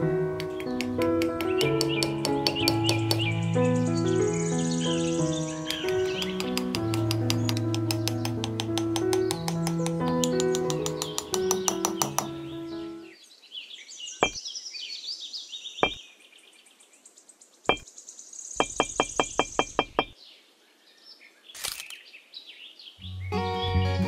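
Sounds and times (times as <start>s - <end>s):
birds chirping: 0.2s - 24.0s
small hammer tapping: 0.4s - 3.3s, 5.7s - 12.4s, 18.6s - 20.1s.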